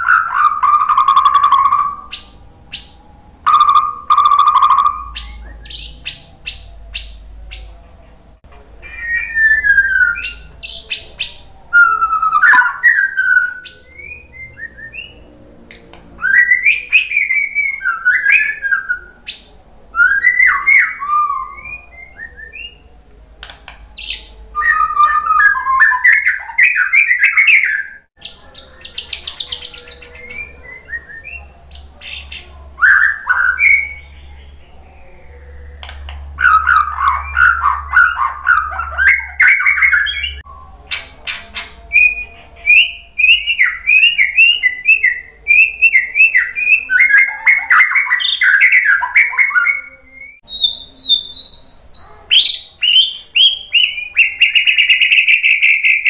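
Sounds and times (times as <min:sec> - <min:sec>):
bird singing whistles and clicks: 0:11.8 - 0:15.1, 0:23.4 - 0:27.9.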